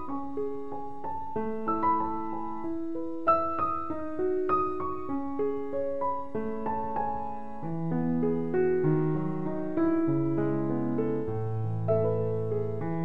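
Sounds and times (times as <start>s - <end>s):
gentle piano melody: 0.0s - 13.0s.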